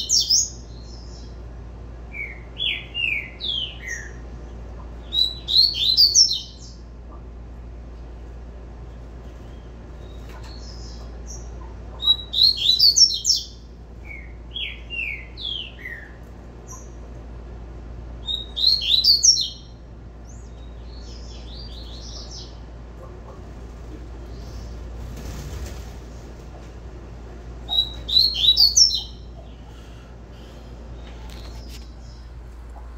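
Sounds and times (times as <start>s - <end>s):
bird singing: 0.0s - 7.2s, 9.0s - 17.1s, 18.2s - 23.4s, 27.6s - 32.9s.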